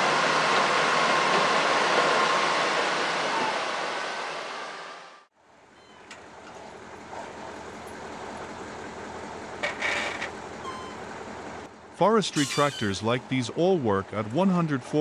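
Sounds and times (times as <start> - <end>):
truck engine running under load: 5.6 - 14.9.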